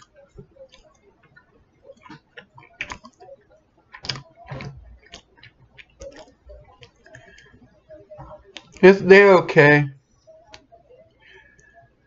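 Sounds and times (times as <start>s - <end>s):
person chewing wetly: 2.0s - 3.2s.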